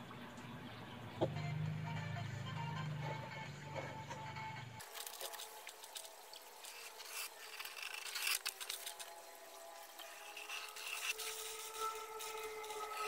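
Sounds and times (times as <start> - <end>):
pencil scratching on plywood: 10.0 - 13.0.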